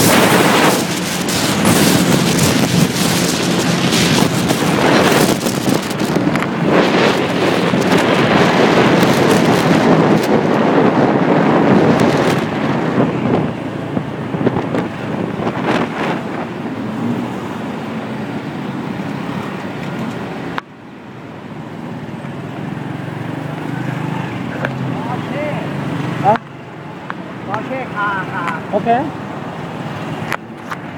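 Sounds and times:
motorbike engine: 0:00.0 - 0:20.5
wind buffeting microphone: 0:00.0 - 0:20.6
city traffic: 0:00.0 - 0:30.9.

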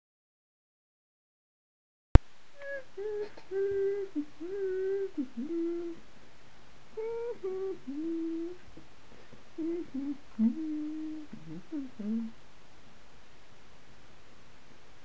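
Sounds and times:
person humming a tune: 0:02.6 - 0:06.0, 0:06.9 - 0:08.6, 0:09.6 - 0:12.4.

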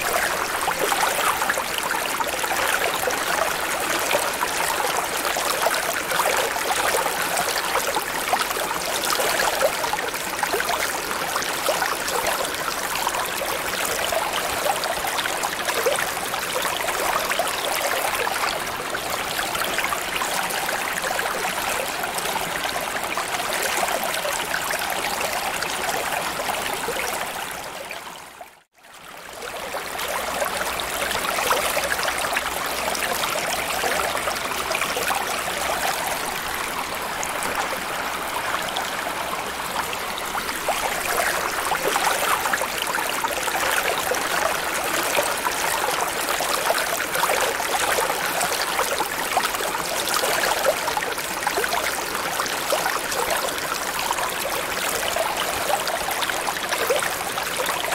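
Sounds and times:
flowing trickling water: 0:00.0 - 0:57.9.

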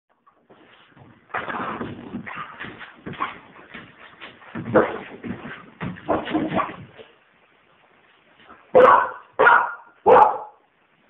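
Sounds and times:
soft scratching: 0:00.5 - 0:07.1
puppy barking: 0:08.7 - 0:10.6.

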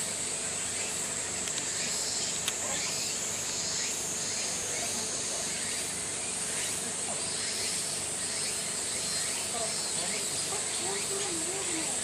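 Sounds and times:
cicadas droning: 0:00.0 - 0:12.0
faint voices: 0:04.1 - 0:08.2, 0:09.2 - 0:12.0.

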